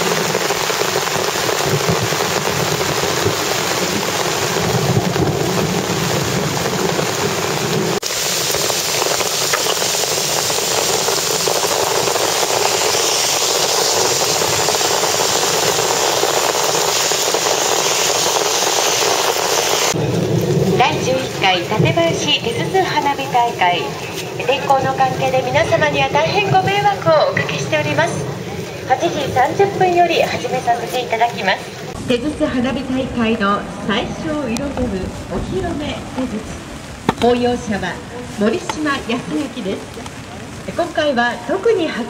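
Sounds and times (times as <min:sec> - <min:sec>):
heavy rain hissing: 0:00.0 - 0:42.0.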